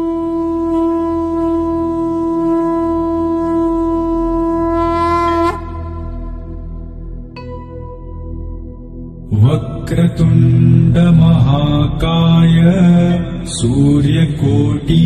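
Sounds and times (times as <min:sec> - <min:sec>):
conch shell blown: 0:00.0 - 0:08.1
musical drone: 0:00.0 - 0:15.0.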